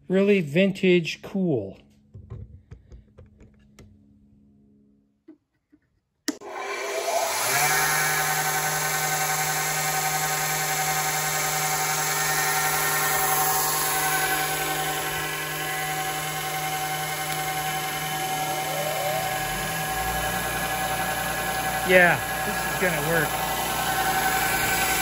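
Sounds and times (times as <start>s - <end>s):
sander motor humming: 6.3s - 25.0s.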